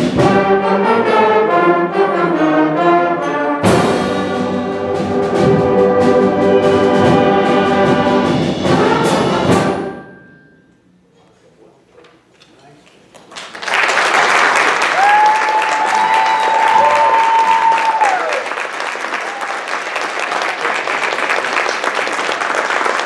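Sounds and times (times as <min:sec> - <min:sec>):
concert band playing: 0:00.0 - 0:10.2.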